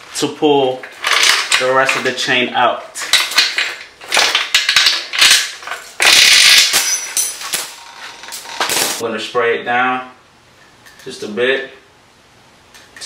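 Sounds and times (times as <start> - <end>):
drive chain rattling: 3.0 - 9.0.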